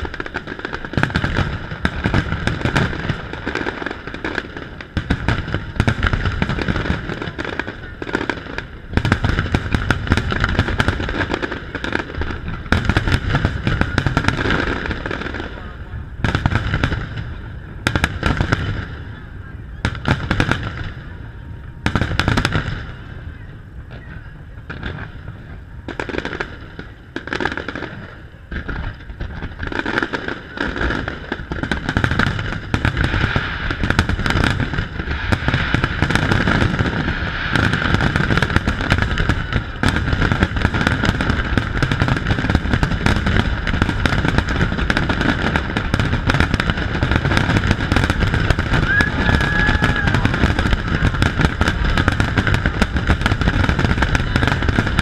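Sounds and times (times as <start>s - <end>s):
fireworks bursting and crackling: 0.0s - 55.0s.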